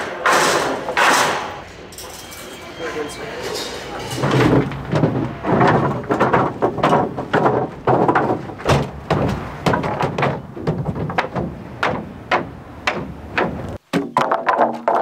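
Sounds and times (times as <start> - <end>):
boards scraping and rattling: 0.0 - 15.0
wooden boards knocking: 4.2 - 15.0.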